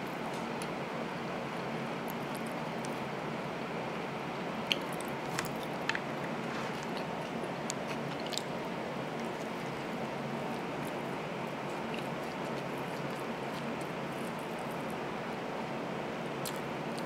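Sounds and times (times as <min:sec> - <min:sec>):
person chewing: 0:04.6 - 0:15.0, 0:16.4 - 0:17.0.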